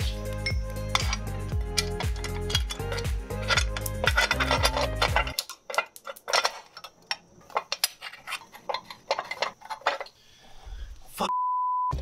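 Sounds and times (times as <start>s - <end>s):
metallic tool clinks: 0.2s - 6.5s.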